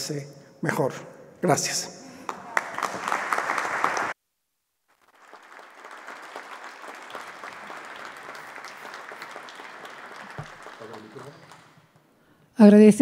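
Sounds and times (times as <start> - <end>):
applause: 2.2 - 4.2, 4.9 - 12.1.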